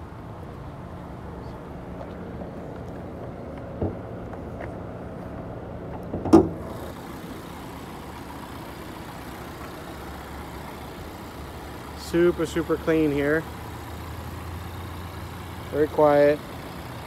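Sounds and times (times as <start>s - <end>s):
car engine idling: 0.0s - 17.0s
hood latch clunk: 6.0s - 6.6s.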